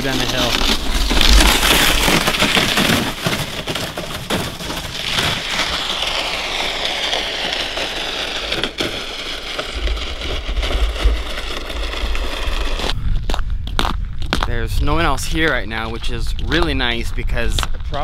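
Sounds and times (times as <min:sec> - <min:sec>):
plastic sled sliding on snow and ice: 0:00.0 - 0:13.0
low rumble: 0:04.5 - 0:18.0.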